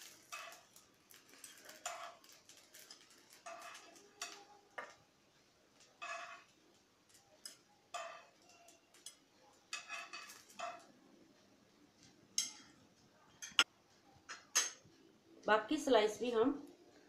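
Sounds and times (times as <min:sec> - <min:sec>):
metal tongs clinking on pan and plate: 0:00.0 - 0:05.0, 0:05.8 - 0:11.0, 0:12.0 - 0:13.7, 0:14.3 - 0:14.9.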